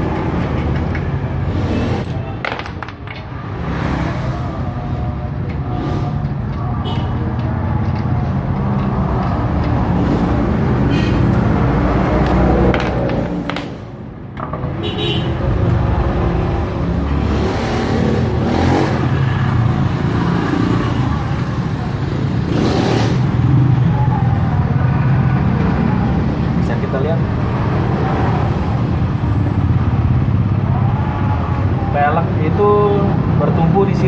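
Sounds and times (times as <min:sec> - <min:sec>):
lug nuts clinking: 0:00.0 - 0:01.4.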